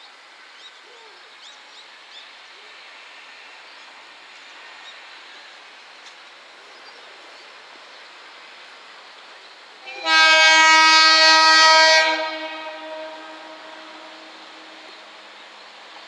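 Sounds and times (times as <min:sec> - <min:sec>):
train air horn blast: 0:09.8 - 0:15.4.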